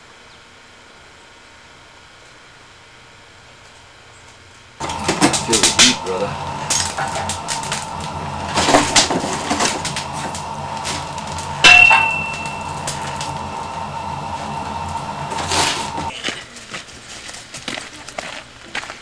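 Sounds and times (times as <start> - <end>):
wood fire crackling: 3.6 - 16.2
metal clang on stove: 11.3 - 14.0.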